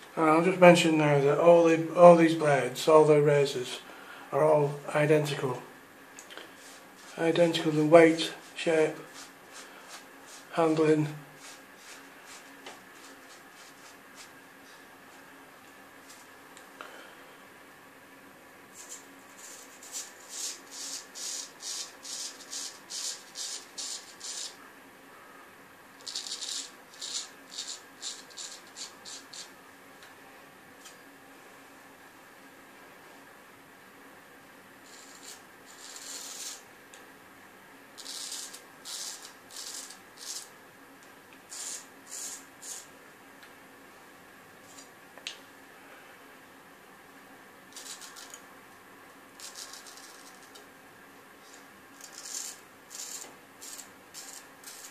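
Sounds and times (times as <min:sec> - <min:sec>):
razor scraping stubble: 0:18.8 - 0:24.6, 0:26.0 - 0:29.5, 0:34.9 - 0:36.6, 0:38.0 - 0:40.5, 0:47.7 - 0:48.4, 0:49.4 - 0:50.6, 0:52.0 - 0:54.9.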